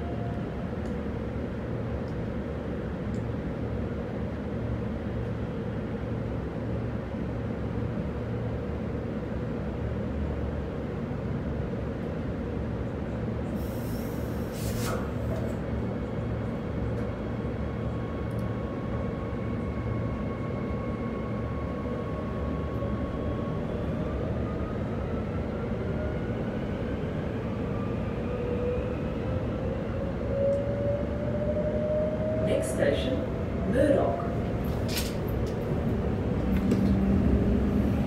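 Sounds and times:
train wheels rumbling on track: 10.4s - 38.0s
brief hiss: 13.6s - 15.2s.

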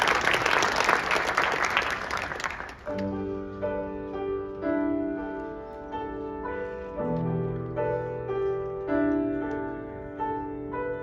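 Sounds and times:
piano playing slow chords: 2.9s - 11.0s.

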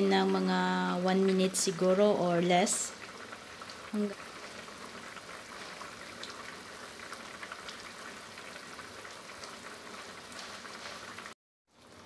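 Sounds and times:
curry sauce bubbling in a pan: 2.6s - 12.0s.

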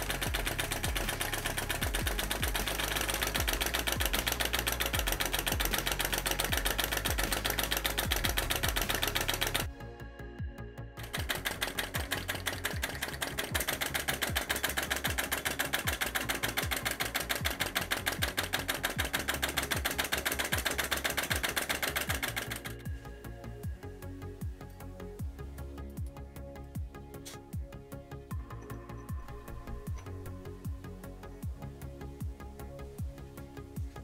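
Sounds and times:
small engine rapid mechanical clatter: 0.0s - 9.7s, 11.0s - 22.9s.

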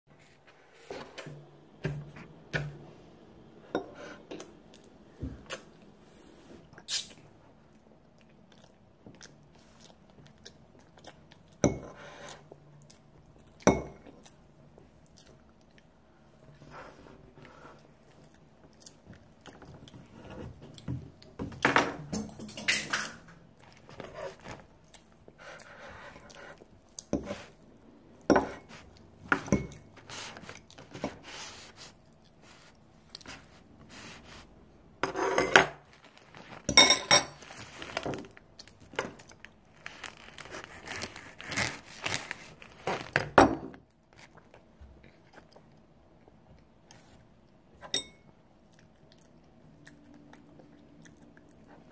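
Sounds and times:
chewing: 7.7s - 11.6s, 12.3s - 16.5s, 17.4s - 21.4s, 23.6s - 27.7s, 48.6s - 51.9s
fork scraping ceramic plate: 35.0s - 35.6s.

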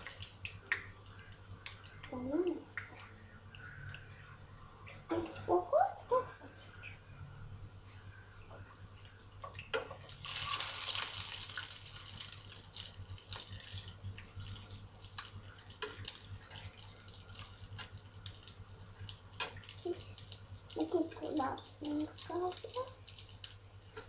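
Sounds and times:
food sizzling in oil: 10.2s - 13.7s.

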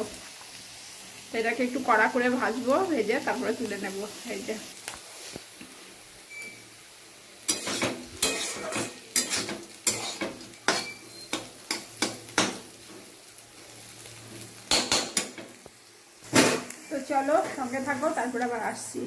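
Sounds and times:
faint sizzle: 0.0s - 19.0s
spatula scraping a pan: 7.5s - 12.9s.

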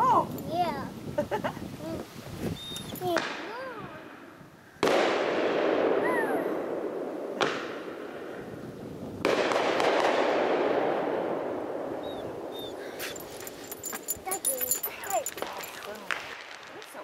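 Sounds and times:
firework booms with rolling echo: 4.8s - 12.5s, 16.1s - 17.0s.

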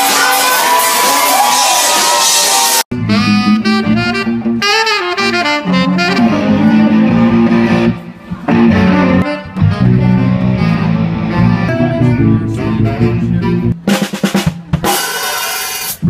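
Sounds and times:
band with electric guitar and bass: 0.0s - 16.0s
loud live music with crowd: 0.0s - 16.0s
saxophone melody: 2.9s - 13.8s.

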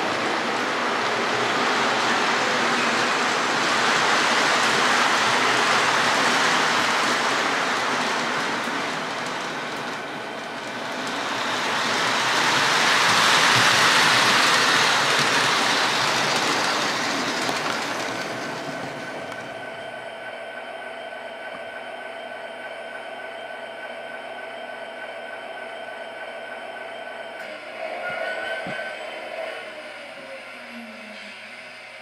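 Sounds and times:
model trains rumbling on track: 0.0s - 19.6s.

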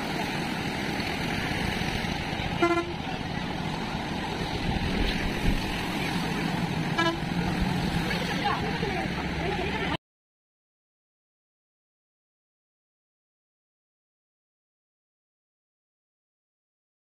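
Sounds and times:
river water rushing over weir: 0.0s - 10.0s
vehicle horn beeps: 2.6s - 3.0s, 7.0s - 7.3s.

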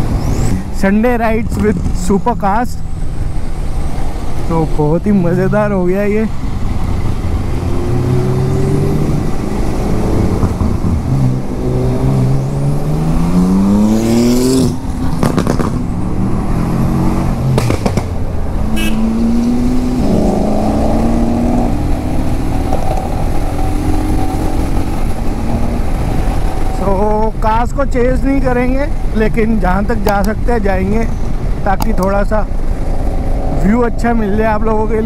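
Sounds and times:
sports car engines accelerating: 1.5s - 35.0s
motorcycle engine: 6.3s - 26.8s
sharp cracks: 17.5s - 18.3s.

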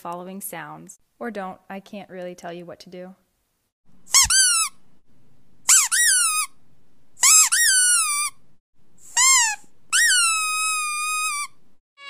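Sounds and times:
high-pitched whining cries: 9.2s - 11.6s.

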